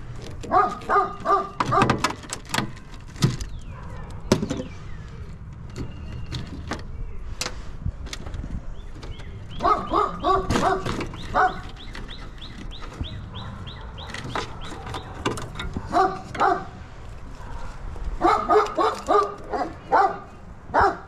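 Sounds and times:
dog barking: 0.5 - 1.9, 3.7 - 4.3, 9.6 - 11.6, 13.3 - 15.2, 15.8 - 16.8, 17.4 - 21.0.

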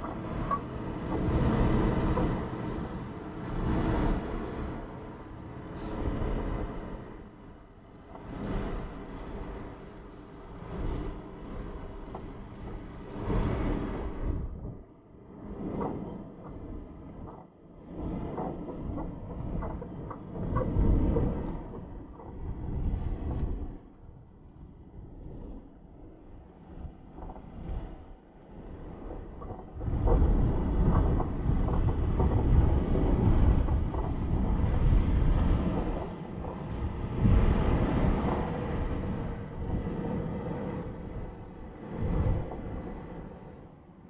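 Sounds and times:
wind on microphone: 10.5 - 44.0.

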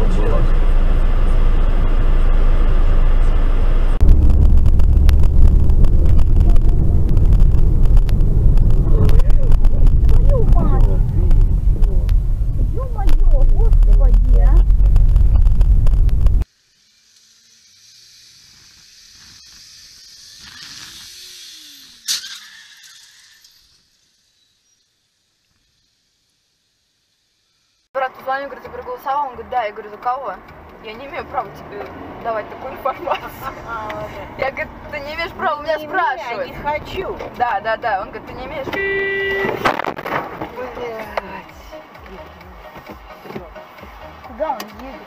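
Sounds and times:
road and engine rumble: 0.0 - 16.6, 26.6 - 45.0
street traffic: 0.0 - 16.6, 26.7 - 45.0
light ticks: 28.3 - 34.0.

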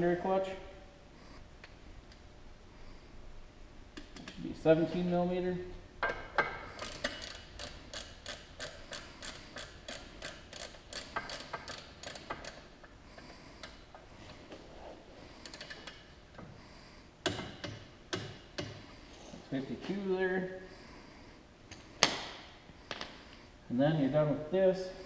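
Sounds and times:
socket ratchet clicking: 6.0 - 12.7.

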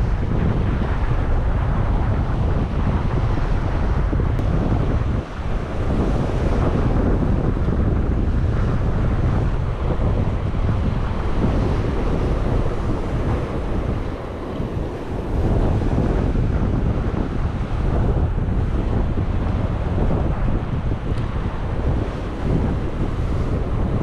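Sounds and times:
ocean swell breaking on rocks: 0.0 - 24.0
wind buffeting microphone: 0.0 - 24.0.

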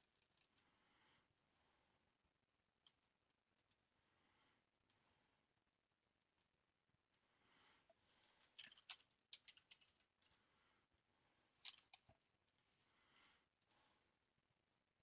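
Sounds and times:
faint clicks and taps: 7.9 - 10.4, 11.6 - 12.6.

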